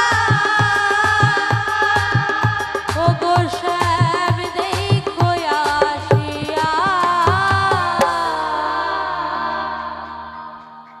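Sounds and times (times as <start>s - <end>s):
hand drums beating: 0.0s - 8.4s.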